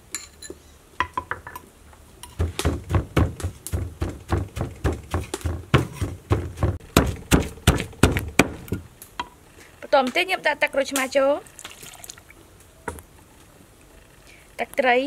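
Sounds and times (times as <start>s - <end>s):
pestle pounding in mortar: 2.3s - 8.9s.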